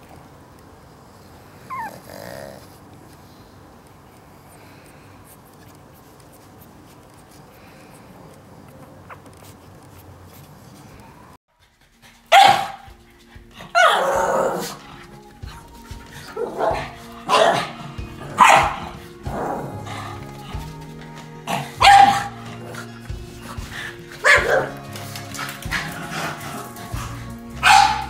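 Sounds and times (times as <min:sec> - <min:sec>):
faint background noise: 0:00.0 - 0:28.0
dog barking: 0:12.3 - 0:12.9, 0:13.7 - 0:14.8, 0:16.3 - 0:19.0, 0:21.5 - 0:22.5, 0:24.2 - 0:24.8, 0:27.6 - 0:28.0.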